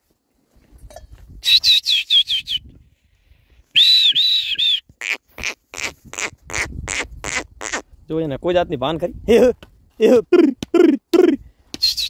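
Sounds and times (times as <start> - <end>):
high whistled bird calls: 11.8 - 12.0.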